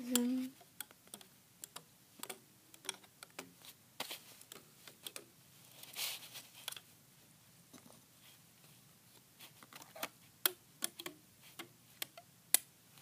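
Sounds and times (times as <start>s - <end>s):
rubber bands clicking off pegs: 9.9s - 12.7s.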